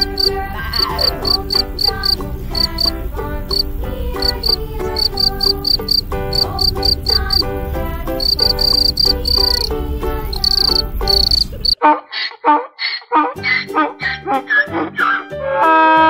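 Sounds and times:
short repeated pitched calls: 0:00.0 - 0:07.4, 0:10.3 - 0:15.2
background music: 0:00.0 - 0:11.8, 0:13.2 - 0:16.0
cricket chirping: 0:00.0 - 0:11.8.

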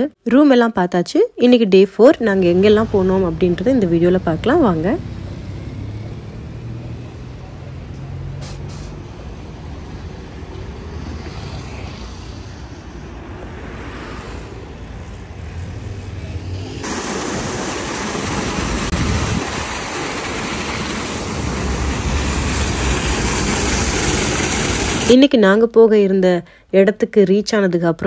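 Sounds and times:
city traffic rumbling: 0:01.7 - 0:26.0
fountain water splashing into basin: 0:16.8 - 0:25.1.

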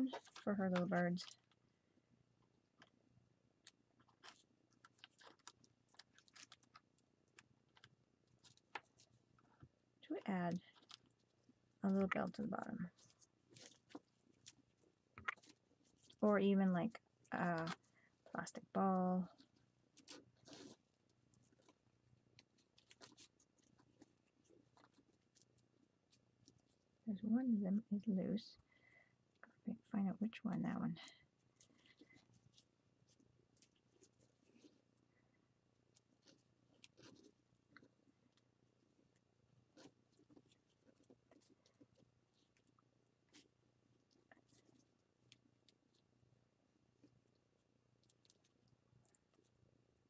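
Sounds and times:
hands knotting cord clicks and rustles: 0:00.0 - 0:01.7, 0:02.4 - 0:27.4, 0:28.0 - 0:50.0.

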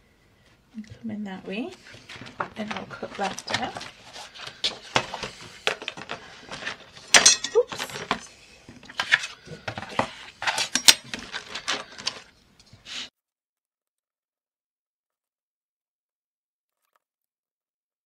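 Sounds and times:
paper and tools clattering: 0:01.5 - 0:12.8.

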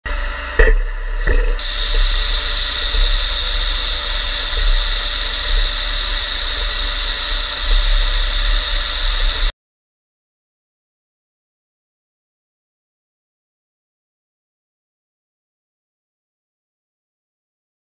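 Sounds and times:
plasma torch cutting steel: 0:00.1 - 0:09.5.

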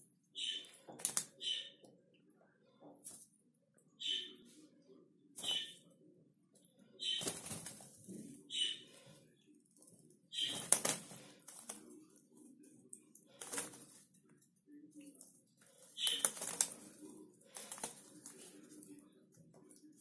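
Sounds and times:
high bird chirp: 0:00.3 - 0:01.8, 0:04.0 - 0:04.5, 0:05.4 - 0:05.8, 0:07.0 - 0:07.4, 0:08.5 - 0:09.0, 0:10.3 - 0:10.7
bird wings beating: 0:07.0 - 0:08.0, 0:10.4 - 0:11.9, 0:13.4 - 0:14.0, 0:16.0 - 0:18.8
birds splashing in water: 0:10.4 - 0:11.8, 0:13.3 - 0:14.0, 0:15.6 - 0:18.8.

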